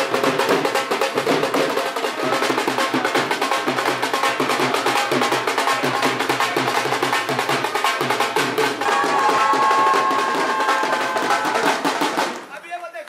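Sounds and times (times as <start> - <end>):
fast dense drumming: 0.0 - 12.4
held melodic note: 8.8 - 12.1.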